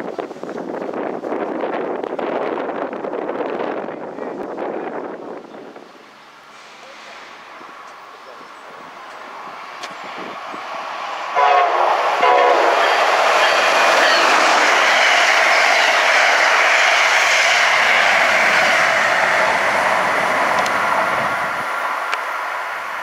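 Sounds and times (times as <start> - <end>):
train wheels rushing on rail: 0.1 - 23.0
train horn blasts: 11.3 - 14.7.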